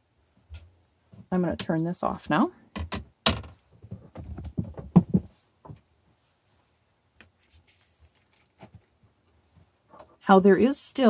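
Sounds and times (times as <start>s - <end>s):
knocks and bumps on a desk: 2.8s - 5.9s.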